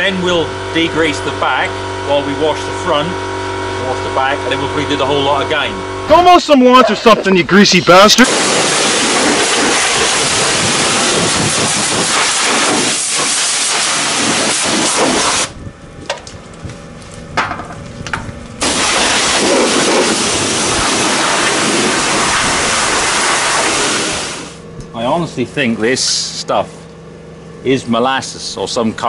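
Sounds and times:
pressure washer spray hissing: 8.2s - 15.5s, 18.6s - 24.6s.

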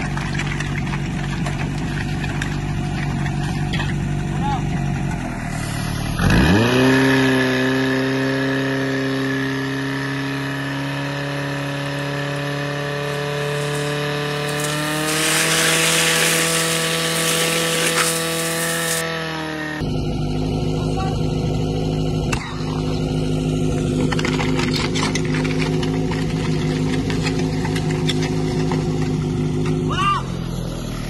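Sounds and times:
fire pump petrol engine revving: 0.0s - 31.0s
rushing hiss: 13.1s - 19.0s.

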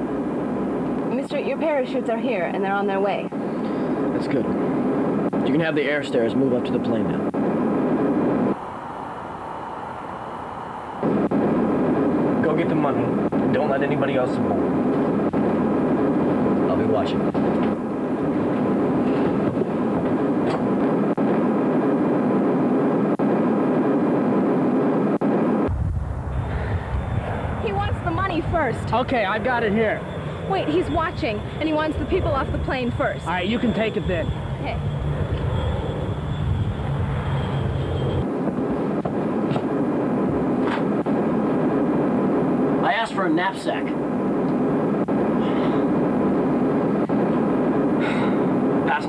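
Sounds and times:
airliner cabin engine rumble: 0.0s - 23.2s, 23.8s - 49.0s
steady hiss: 22.2s - 38.3s.

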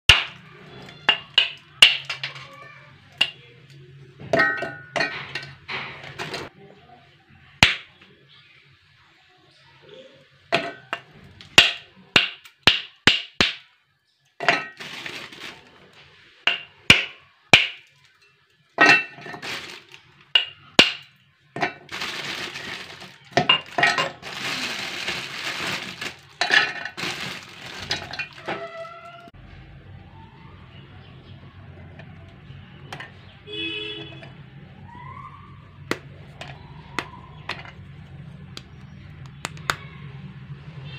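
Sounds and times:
dense crumbling and crackling: 4.2s - 6.5s, 14.4s - 29.4s
steel jar ringing: 23.3s - 24.2s.

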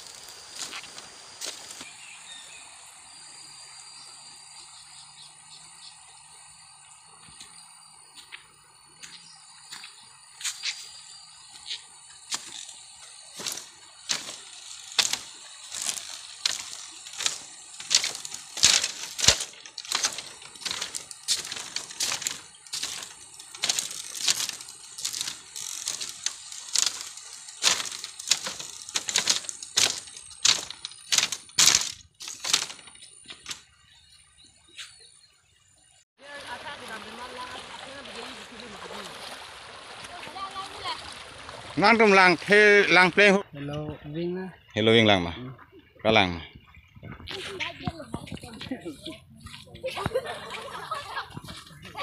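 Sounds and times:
footsteps on bamboo slats: 0.0s - 2.0s, 7.3s - 33.7s, 46.3s - 52.0s
bamboo slats clacking and cracking: 12.3s - 12.8s, 13.4s - 33.7s.

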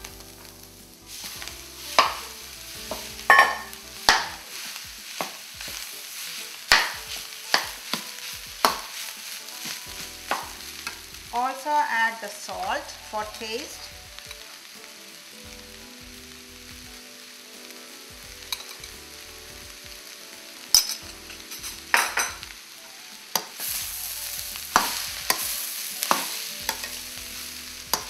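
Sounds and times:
food sizzling in a wok: 0.0s - 28.0s
metal spoon scraping pan: 2.9s - 11.0s
spoon clinking on pan: 3.3s - 4.4s, 6.7s - 9.0s, 18.5s - 18.9s, 20.7s - 22.4s.

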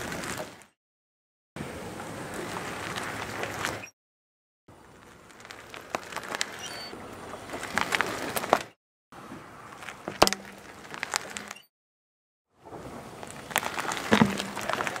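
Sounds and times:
tyre rolling over cable on concrete: 9.7s - 11.5s, 12.7s - 15.0s.

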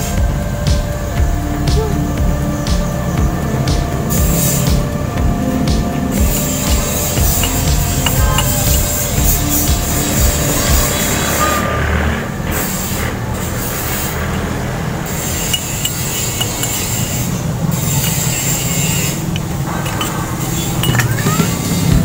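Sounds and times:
metal scraping of bottle jack: 15.1s - 22.0s.

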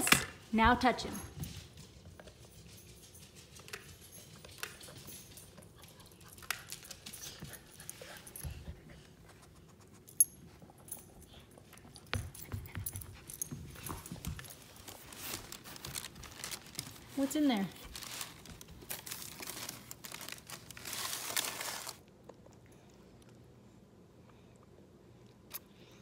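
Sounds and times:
dogs moving about: 1.0s - 22.0s.

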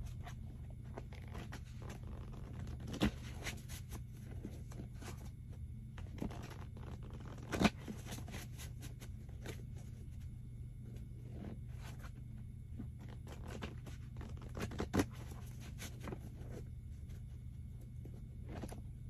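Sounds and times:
cards being shuffled: 6.1s - 9.6s.

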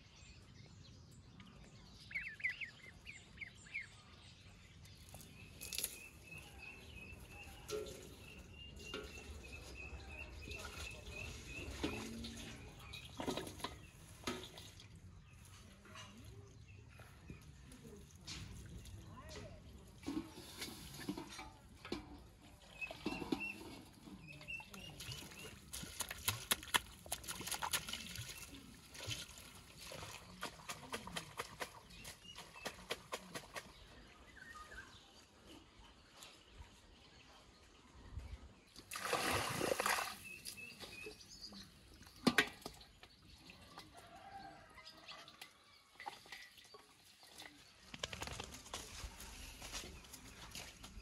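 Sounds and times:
water splashing in a metal basin: 5.0s - 16.2s, 17.9s - 34.2s, 38.7s - 48.5s
water pouring: 7.1s - 15.1s, 38.9s - 40.4s.

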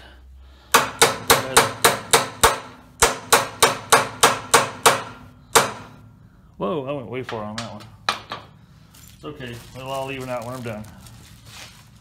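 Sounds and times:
hammer striking metal: 0.7s - 6.1s.

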